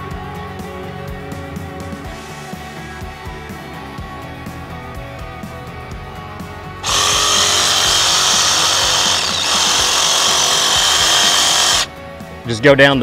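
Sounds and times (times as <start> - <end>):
background music: 0.0 - 13.0
reciprocating saw cutting bone: 6.8 - 11.9.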